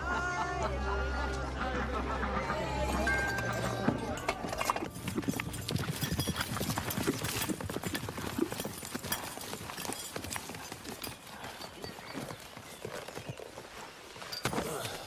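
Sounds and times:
horse hooves clip-clopping: 3.1s - 15.0s.

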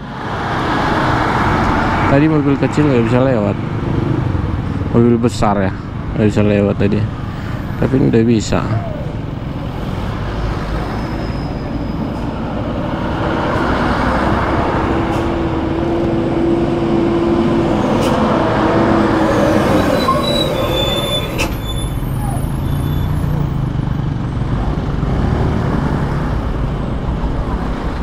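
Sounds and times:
heavy truck passing: 0.0s - 28.0s.

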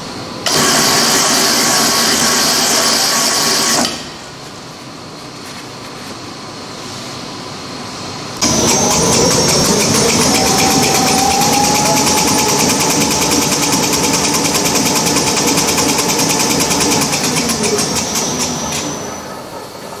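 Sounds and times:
machine fast clatter and whine: 0.4s - 4.0s, 8.4s - 20.0s
machine low hum: 4.0s - 20.0s.

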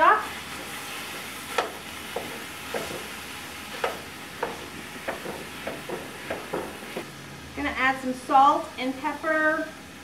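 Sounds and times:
meat sizzling in a skillet: 0.0s - 7.0s.

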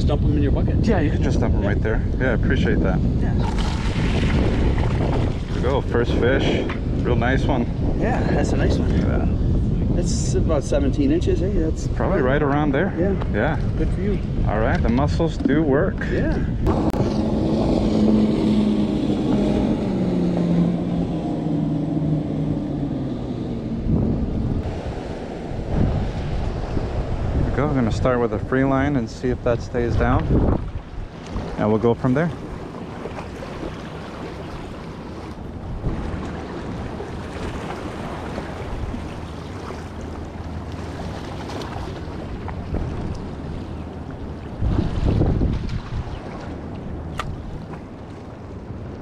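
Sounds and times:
motorboat engine passing: 0.0s - 49.0s
wind buffeting microphone: 0.0s - 49.0s
small waves lapping against rocks: 32.2s - 48.3s.

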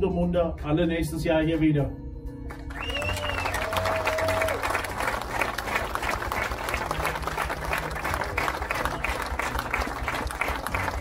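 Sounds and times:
crowd applauding: 2.5s - 11.0s
hands clapping close by: 2.5s - 11.0s.

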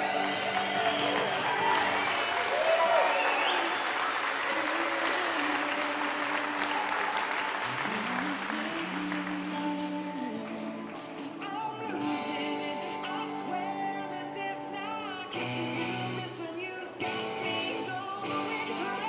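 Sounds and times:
audience applauding: 0.0s - 11.9s
background music: 0.0s - 19.0s.

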